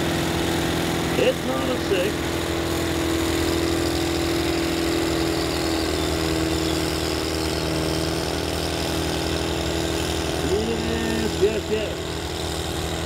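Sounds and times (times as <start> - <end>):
tractor diesel engine under load: 0.0 - 13.0
whining tone: 3.8 - 13.0.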